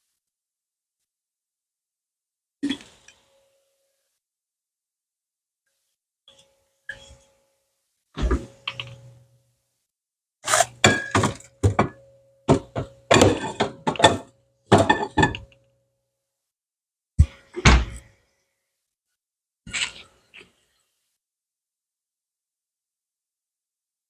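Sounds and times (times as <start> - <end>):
hard objects knocking and clattering: 10.8 - 15.5.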